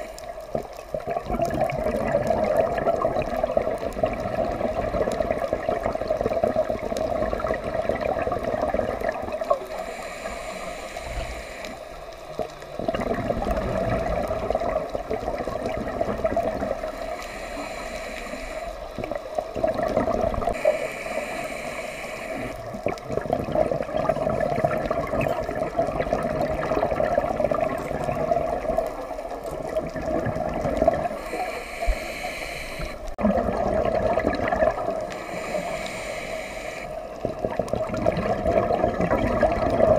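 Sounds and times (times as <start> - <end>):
exhaled bubbles gurgling: 0.0 - 39.9
regulator inhale hiss: 9.5 - 12.7, 16.8 - 19.3, 20.5 - 22.7, 31.0 - 33.2, 35.0 - 37.2.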